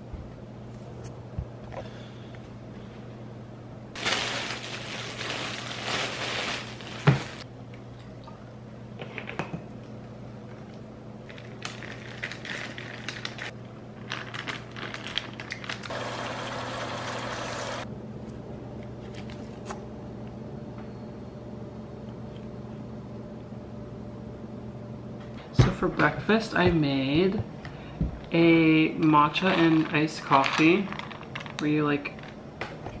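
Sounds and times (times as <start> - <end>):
plastic bag crinkling: 4.0 - 7.4, 11.2 - 15.9.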